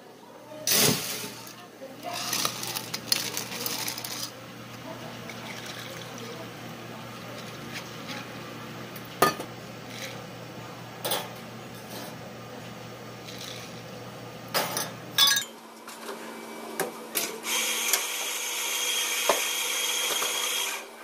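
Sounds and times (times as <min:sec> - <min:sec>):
ice crackling and clinking: 0:02.0 - 0:04.3
water pouring over ice: 0:02.1 - 0:04.3, 0:05.3 - 0:06.3
glass clinks: 0:15.2 - 0:15.5.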